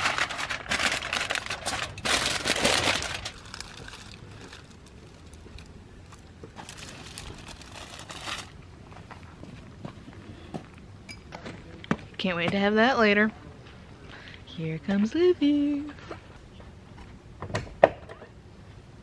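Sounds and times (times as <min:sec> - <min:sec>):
aluminium foil crinkling: 0:00.0 - 0:08.6.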